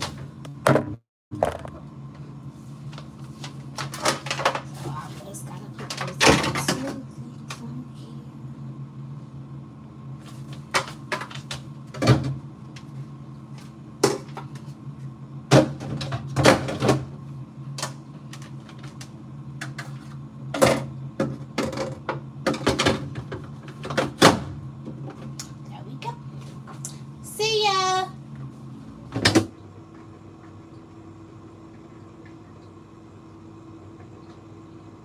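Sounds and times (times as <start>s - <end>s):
steady low hum: 0.0s - 35.0s.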